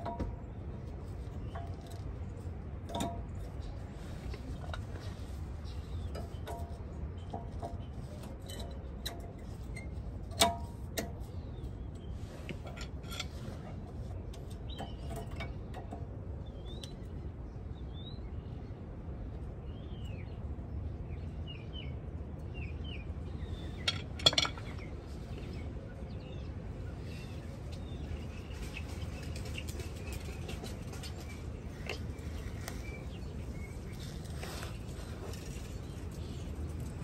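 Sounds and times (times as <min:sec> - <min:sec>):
low background rumble: 0:00.0 - 0:37.0
small birds chirping: 0:11.2 - 0:18.9, 0:19.6 - 0:37.0
tool clinking against metal: 0:23.8 - 0:24.9.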